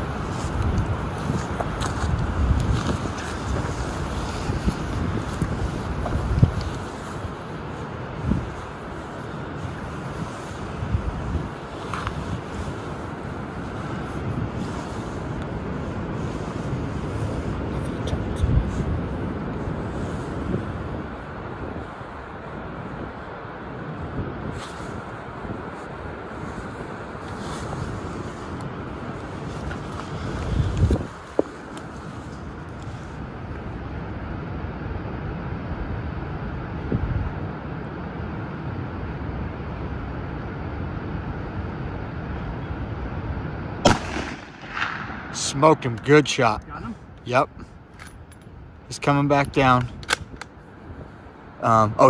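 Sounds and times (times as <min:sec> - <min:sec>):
low rushing outdoor ambience: 0:00.0 - 0:52.0
wind rumble on microphone: 0:00.0 - 0:52.0.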